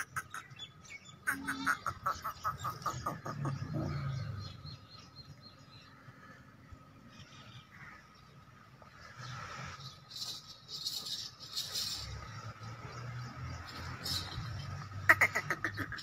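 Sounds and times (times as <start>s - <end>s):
low drawn-out animal call: 1.3s - 4.5s.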